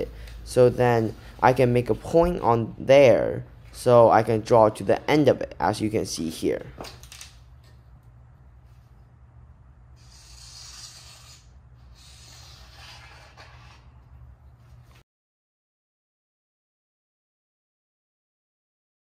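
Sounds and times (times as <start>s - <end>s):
low steady hum: 0.0s - 15.0s
marker scratching on rough wood: 10.0s - 14.0s.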